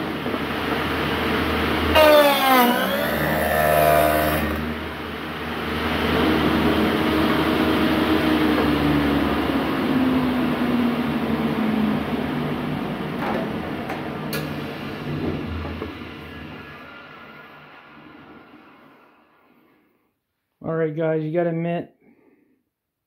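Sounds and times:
table saw cutting wood: 1.7s - 5.1s
saw motor winding down: 1.8s - 5.1s.

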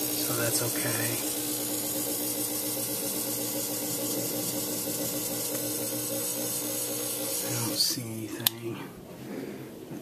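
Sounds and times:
fog machine humming and hissing: 0.0s - 10.0s.

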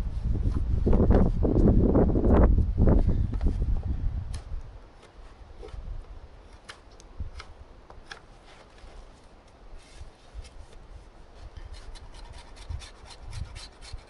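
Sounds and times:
knife scraping wood: 11.4s - 14.0s.

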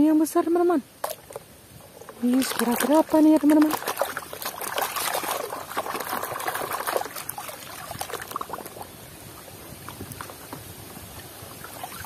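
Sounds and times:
water sloshing in plastic bucket: 1.0s - 12.0s.

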